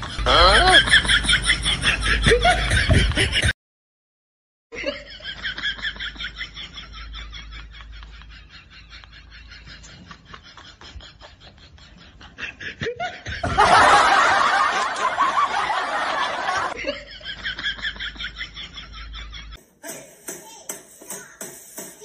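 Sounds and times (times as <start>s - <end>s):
person snickering: 0.1s - 1.1s.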